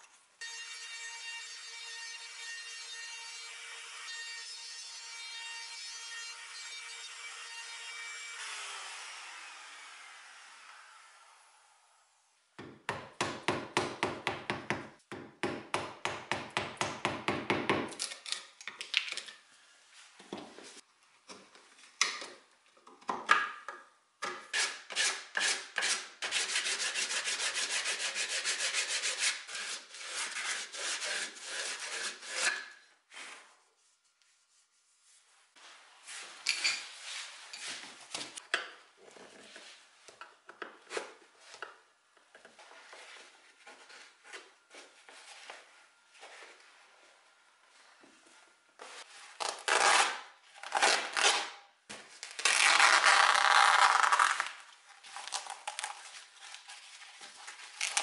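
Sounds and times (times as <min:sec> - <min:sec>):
chisel scraping: 0:24.5 - 0:32.8
sanding sponge rubbing wood: 0:24.6 - 0:32.5.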